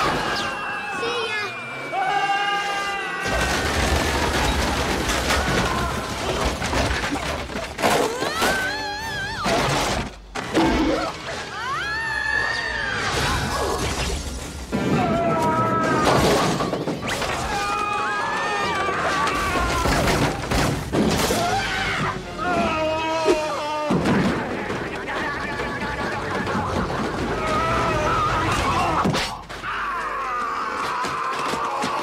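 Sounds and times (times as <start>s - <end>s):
people screaming and yelling: 0.0s - 32.0s
crashing and shattering impacts: 3.2s - 11.5s, 13.0s - 32.0s
background music: 7.7s - 29.0s.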